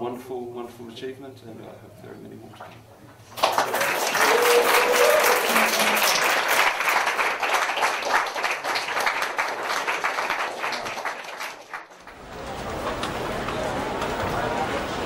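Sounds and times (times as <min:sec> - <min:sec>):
audience applauding: 0:03.4 - 0:15.0.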